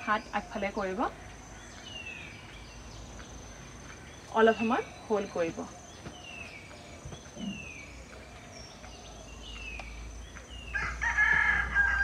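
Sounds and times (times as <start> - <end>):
rooster crowing: 10.7 - 12.0.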